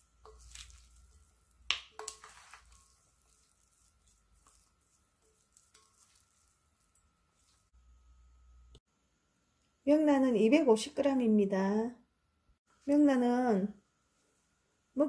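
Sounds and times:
spatula stirring in bowl: 0.0s - 7.8s.

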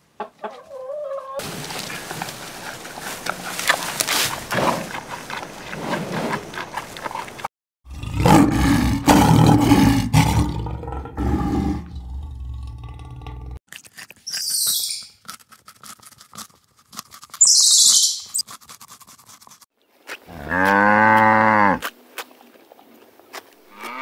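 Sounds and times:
panda chewing bamboo: 1.4s - 7.5s, 13.6s - 20.8s
lion roaring and growling: 7.9s - 13.6s.

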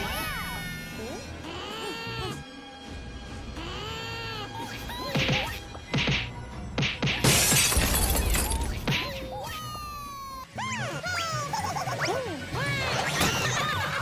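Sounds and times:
music: 0.0s - 14.0s
crash with shattering glass: 7.2s - 8.8s.

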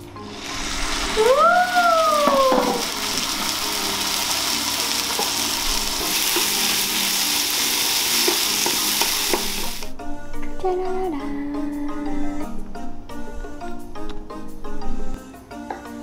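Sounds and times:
onions frying and sizzling: 0.0s - 10.0s
beef sizzling in frying pan: 0.3s - 9.9s.

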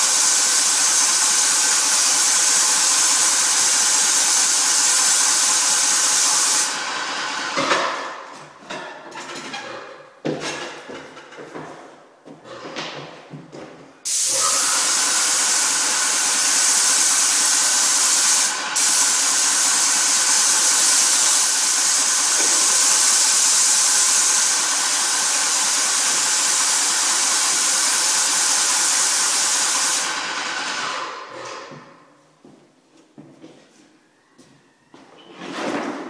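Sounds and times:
paint sprayer hissing: 0.0s - 7.0s, 14.0s - 31.2s.

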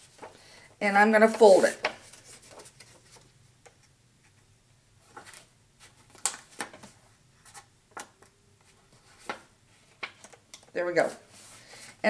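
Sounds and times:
paper rustling: 1.2s - 3.3s, 5.0s - 10.4s.

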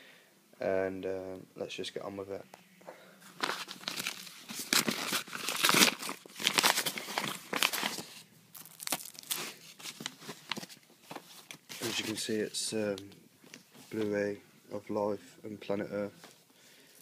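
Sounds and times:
paper tearing and rustling: 3.3s - 12.2s.

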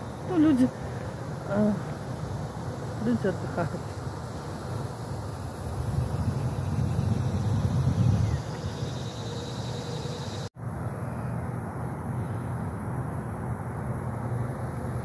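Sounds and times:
wind on microphone: 5.6s - 9.2s.

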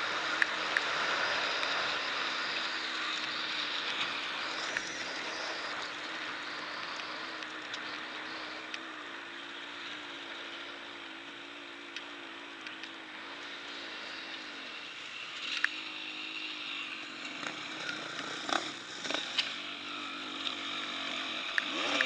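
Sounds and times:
dirt bike engine running: 0.0s - 22.0s
sharp ticks: 0.2s - 9.0s, 11.9s - 13.0s, 15.4s - 16.0s, 17.1s - 22.0s.

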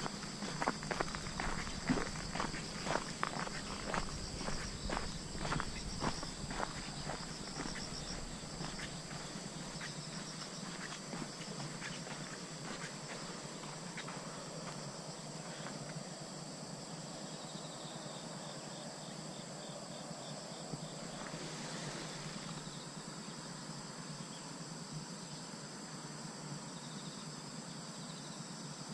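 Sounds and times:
footsteps on dirt path: 0.0s - 16.0s
insects buzzing: 0.0s - 28.9s.

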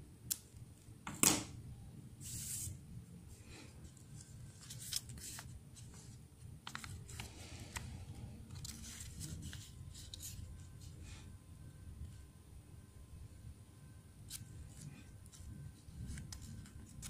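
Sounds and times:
faint low room hum: 0.0s - 17.0s
paper crinkling and rustling: 3.9s - 7.8s, 8.4s - 10.9s, 14.3s - 17.0s.

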